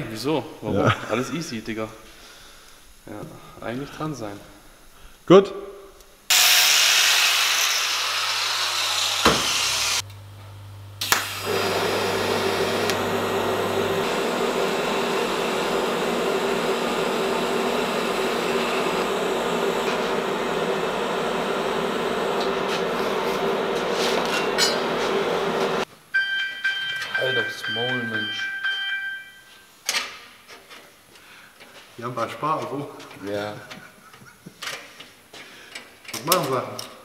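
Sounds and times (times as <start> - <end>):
welding hiss and hum: 6.0 - 25.9.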